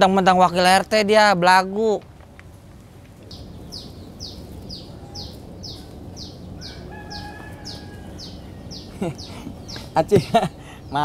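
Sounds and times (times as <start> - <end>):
small bird chirping: 3.3 - 11.0.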